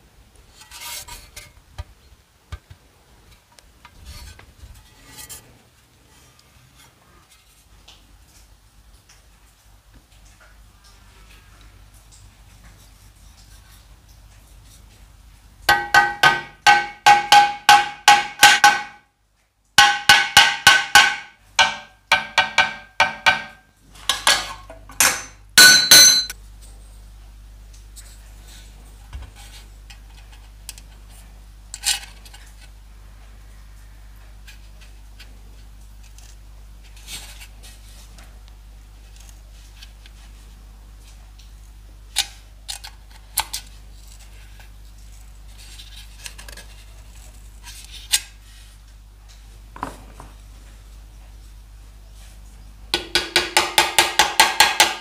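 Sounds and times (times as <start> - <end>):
hammer ringing on metal pipe: 15.7 - 19.0, 19.8 - 23.6, 25.0 - 26.4
metal pick tapping pipe: 15.7 - 19.1, 19.8 - 26.4, 53.0 - 55.0.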